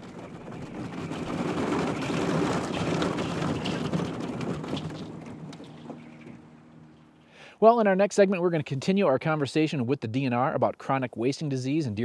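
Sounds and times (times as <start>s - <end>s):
ice breaking against hull: 0.0s - 7.3s
motorboat motor hum: 0.0s - 7.6s.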